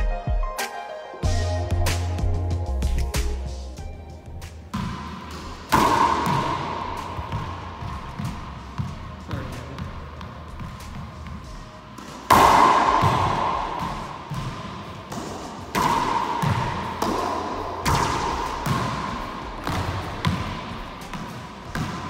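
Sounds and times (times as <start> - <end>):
racquetball cracks echoing: 4.7 - 22.0.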